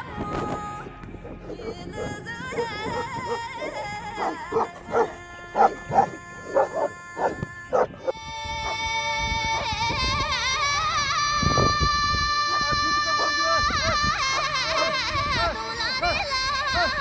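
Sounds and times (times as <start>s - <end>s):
background music with singing: 0.0s - 17.0s
dog barking: 1.4s - 7.9s.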